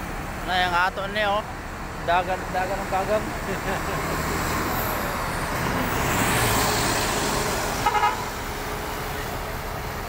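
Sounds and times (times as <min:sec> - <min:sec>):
vehicle passing close by: 0:03.4 - 0:09.2.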